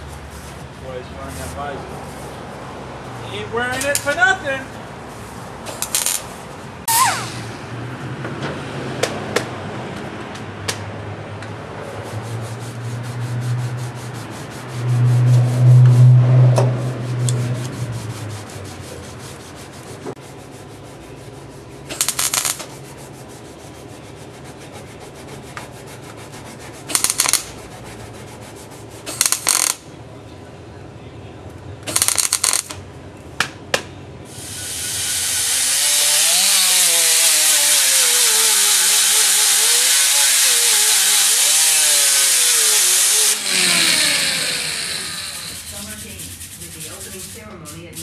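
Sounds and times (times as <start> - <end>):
low hum: 13.0 - 18.8
welder arc crackle: 22.0 - 22.7.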